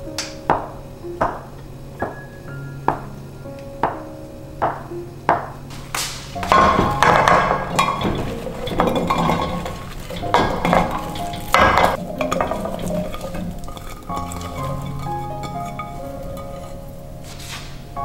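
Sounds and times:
vegetables clattering into pot: 5.7s - 17.8s.

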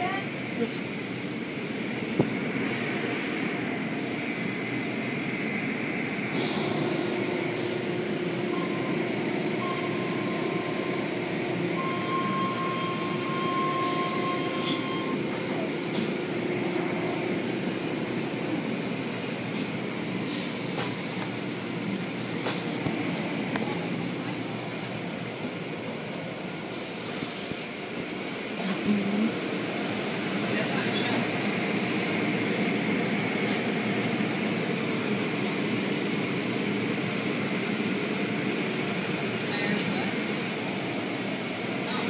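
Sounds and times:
machine hum with whine: 6.9s - 20.2s.

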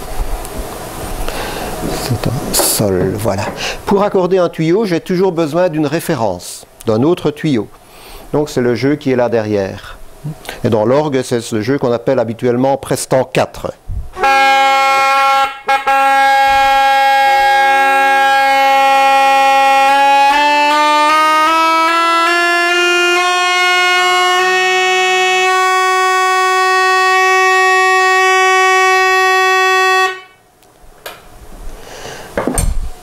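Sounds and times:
steady organ flue pipe: 0.0s - 9.6s, 14.1s - 30.4s
reed pipe sliding pitch: 0.9s - 4.3s, 14.2s - 20.7s.

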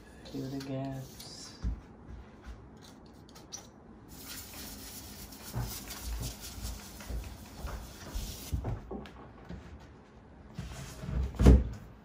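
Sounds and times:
cloth rubbing on countertop: 4.1s - 8.8s.

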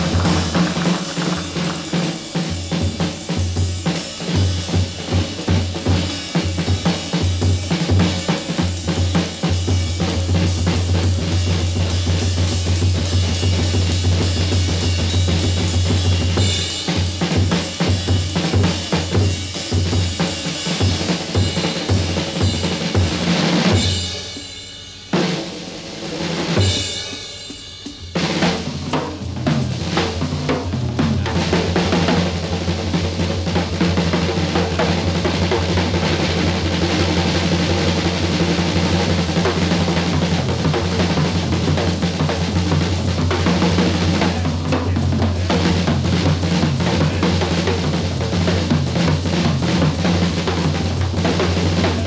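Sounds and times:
cymbal crashes: 0.0s - 32.3s
drum roll: 0.0s - 52.0s
jazz drum solo: 0.0s - 52.0s.

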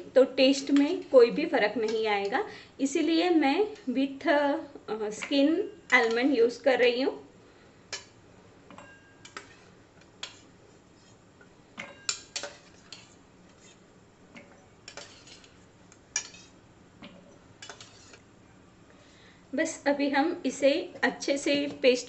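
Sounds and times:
steel spoon clinking on steel: 11.8s - 13.1s, 16.2s - 16.5s.

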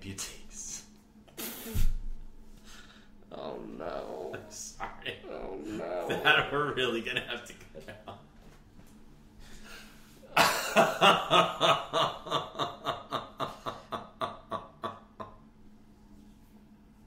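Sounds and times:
person laughing: 4.2s - 8.2s, 10.2s - 15.4s.

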